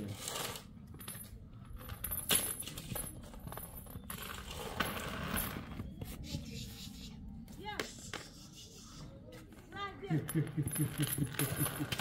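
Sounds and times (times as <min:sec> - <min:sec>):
metal chain clinking: 0:00.2 - 0:05.8, 0:10.1 - 0:12.0.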